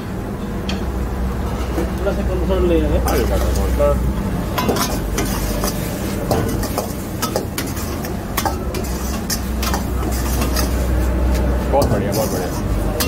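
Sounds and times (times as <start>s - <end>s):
ladle clanking and scraping in wok: 4.4s - 13.0s.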